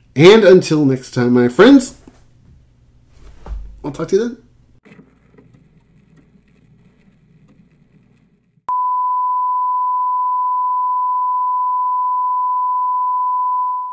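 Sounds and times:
faint crackle: 0:04.8 - 0:08.7.

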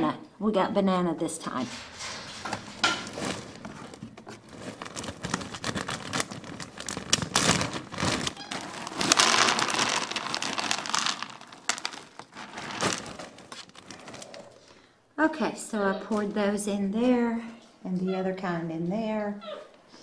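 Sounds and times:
bag crinkling: 0:02.0 - 0:14.8
dry biscuits poured rattling: 0:02.7 - 0:14.2.

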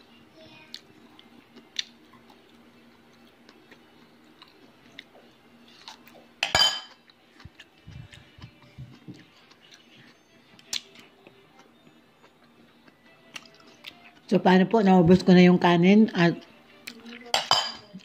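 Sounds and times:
person chewing food: 0:00.7 - 0:14.3
metal spoon clattering in bowl: 0:06.4 - 0:06.9, 0:17.3 - 0:17.9
tableware clicks: 0:06.4 - 0:06.9, 0:17.3 - 0:17.9.

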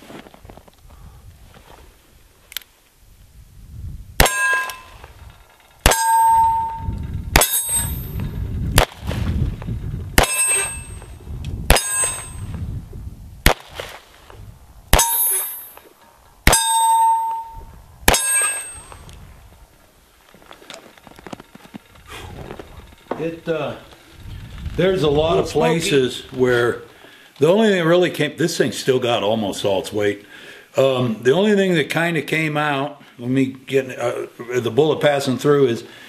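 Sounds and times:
revolver gunshots: 0:04.2 - 0:05.0, 0:05.8 - 0:08.2, 0:10.2 - 0:11.1, 0:11.7 - 0:12.5, 0:14.9 - 0:15.8, 0:18.1 - 0:19.0
steel target clanging: 0:04.2 - 0:08.4, 0:10.2 - 0:12.6, 0:14.9 - 0:15.8, 0:16.5 - 0:19.0.

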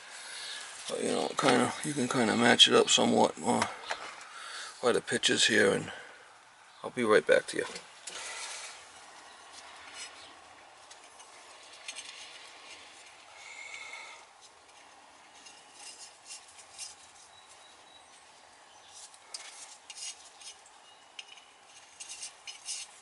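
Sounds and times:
faint rustling: 0:07.5 - 0:23.0.

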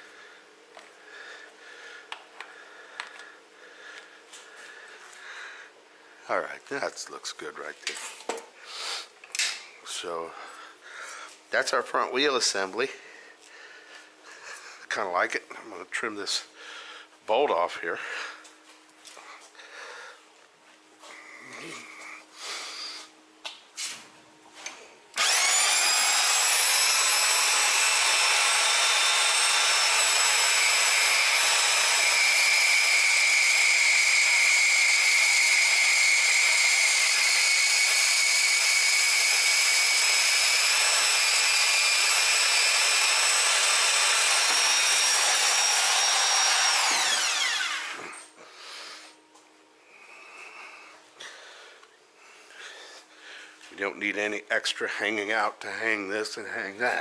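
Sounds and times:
bench grinder whining: 0:25.1 - 0:49.1.

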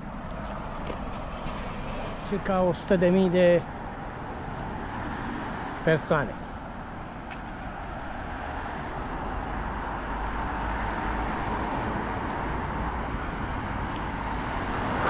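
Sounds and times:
road traffic passing: 0:00.0 - 0:15.0.

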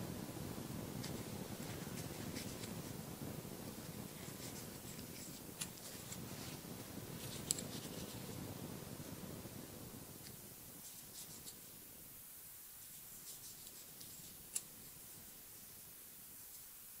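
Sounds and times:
low room noise: 0:00.0 - 0:17.0.

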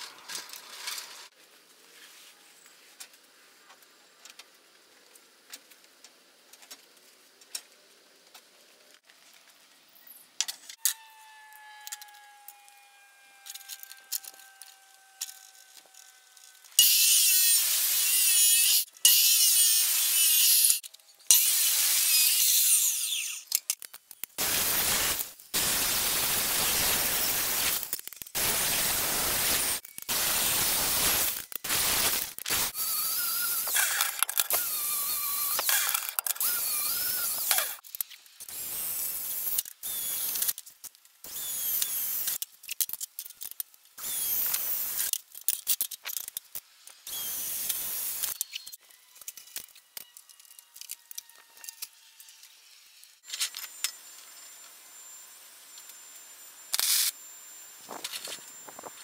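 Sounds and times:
angle grinder grinding steel: 0:10.8 - 0:23.5, 0:24.4 - 0:37.8
drill boring into metal tube: 0:24.4 - 0:37.8, 0:38.5 - 0:40.5, 0:41.3 - 0:42.4, 0:44.0 - 0:45.1, 0:47.0 - 0:48.4.

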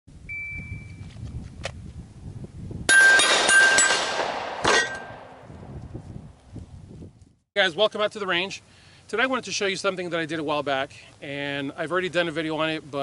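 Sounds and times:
steel targets ringing: 0:02.9 - 0:05.3
pistol shots: 0:02.9 - 0:05.4.

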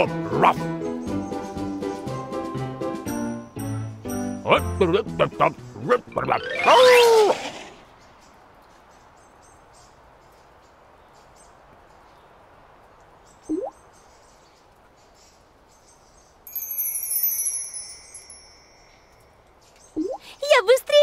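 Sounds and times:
high bird twittering: 0:13.3 - 0:20.6
rising water-drop plink: 0:13.5 - 0:13.8, 0:20.0 - 0:20.3
bright shimmering chime: 0:16.5 - 0:19.4.

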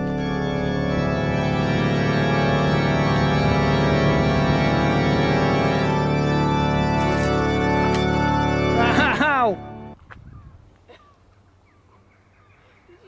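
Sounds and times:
music of long held chords: 0:00.0 - 0:10.0.

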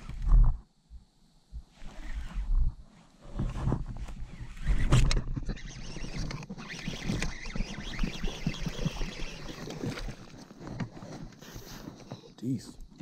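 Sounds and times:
fishing reel being cranked: 0:04.4 - 0:10.3.

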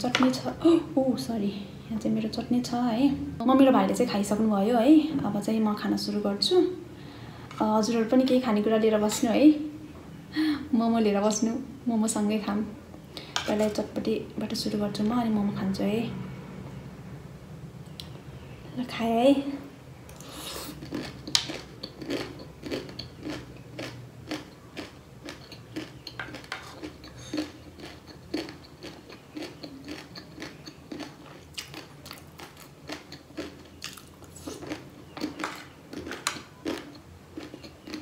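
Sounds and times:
crunchy chewing: 0:20.1 - 0:38.0.

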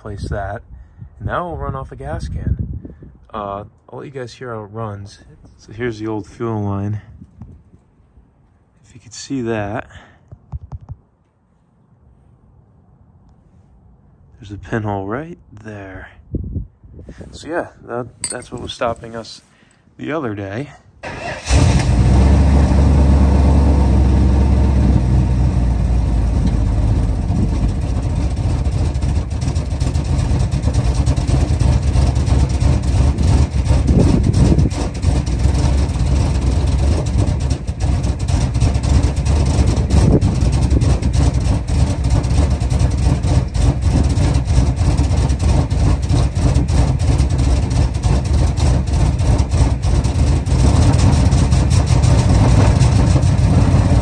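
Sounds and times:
car engine running: 0:21.4 - 0:54.0.

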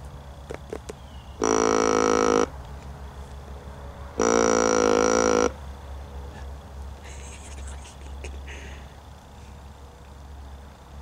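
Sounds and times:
nasal deer calls: 0:01.0 - 0:02.5, 0:04.2 - 0:05.6.

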